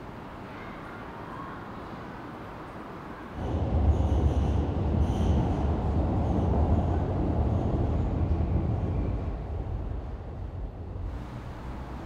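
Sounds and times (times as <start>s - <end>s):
train rumbling: 3.3s - 12.0s.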